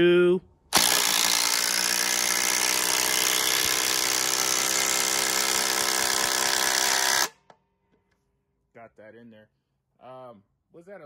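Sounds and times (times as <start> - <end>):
impact driver hammering bolt: 0.7 - 7.6.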